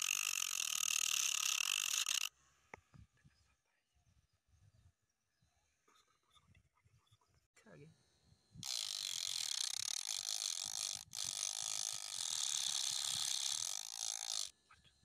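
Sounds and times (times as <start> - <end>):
disc sander grinding wood: 8.6 - 14.5.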